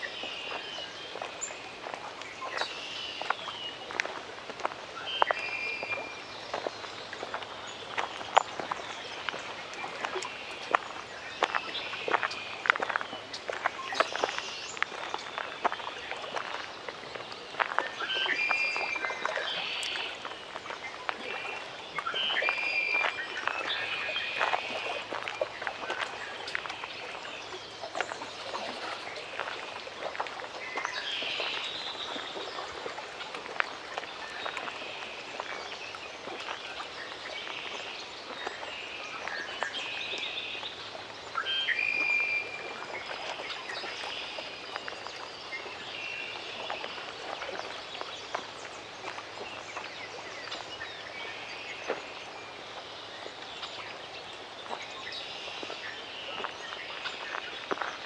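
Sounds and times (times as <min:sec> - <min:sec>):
water lapping clicks: 0:00.0 - 0:58.0.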